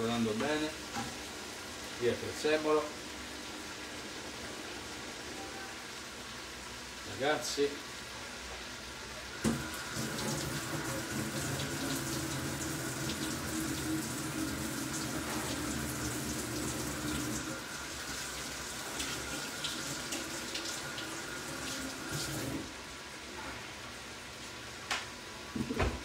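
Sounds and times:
tap water running into sink: 0:09.4 - 0:22.7.

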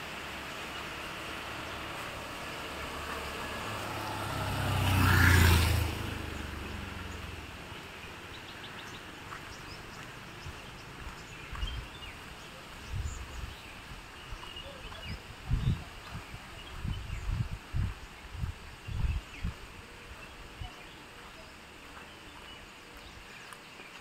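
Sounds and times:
motorcycle passing on wet road: 0:00.0 - 0:12.8
birds chirping: 0:00.0 - 0:24.0.

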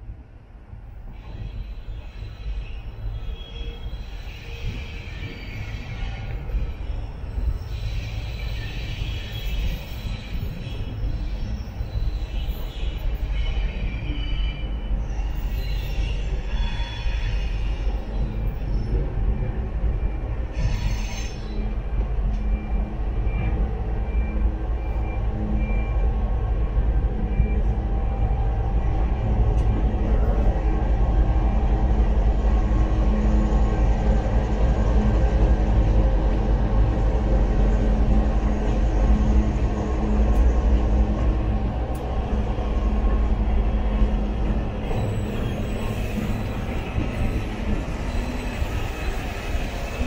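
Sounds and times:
freight train rumble: 0:00.0 - 0:50.0
wheel squeals: 0:20.0 - 0:21.8, 0:44.8 - 0:50.0
locomotive engine hum: 0:21.3 - 0:50.0.

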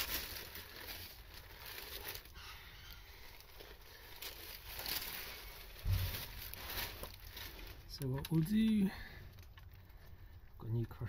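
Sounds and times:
faint rustling handling noise: 0:00.0 - 0:11.0.

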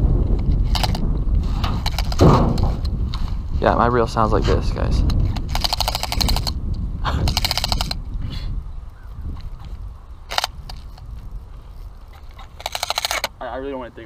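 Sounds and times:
spinning reel rattling clicks: 0:00.3 - 0:01.0, 0:01.8 - 0:02.2, 0:05.0 - 0:08.1, 0:08.9 - 0:13.4.

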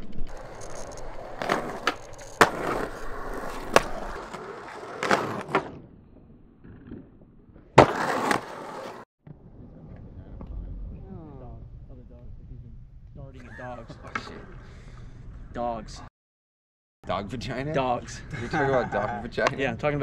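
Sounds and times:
skateboard wheels rolling on concrete: 0:00.0 - 0:09.0
skateboard clacks: 0:00.3 - 0:05.7.

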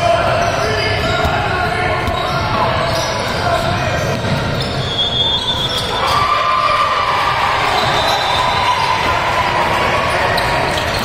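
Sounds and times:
crowd noise: 0:00.0 - 0:11.0
basketball dribbling: 0:00.4 - 0:04.8.

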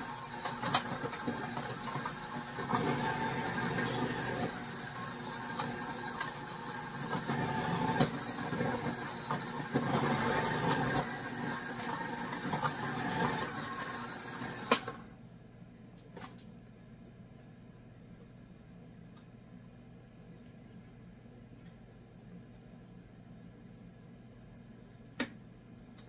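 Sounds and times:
food processor running: 0:00.0 - 0:15.1.

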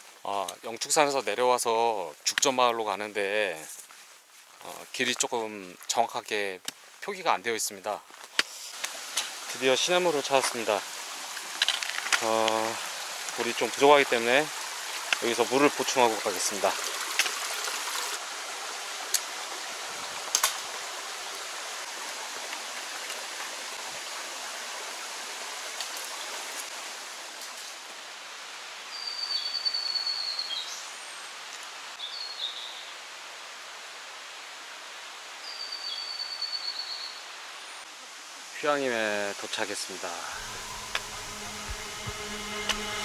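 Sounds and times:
stream rushing over rocks: 0:08.2 - 0:29.0, 0:37.2 - 0:43.0.

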